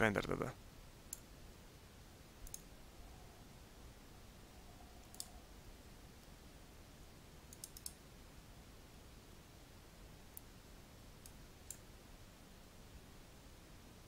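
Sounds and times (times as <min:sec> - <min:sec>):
computer mouse clicks: 0:01.1 - 0:01.3, 0:02.4 - 0:02.7, 0:05.0 - 0:05.4, 0:07.5 - 0:08.0, 0:11.2 - 0:11.8.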